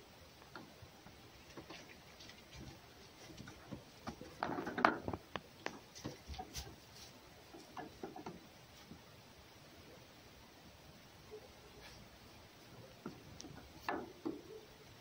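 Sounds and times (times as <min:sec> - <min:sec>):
paws scrabbling on wooden box: 0:01.4 - 0:08.9.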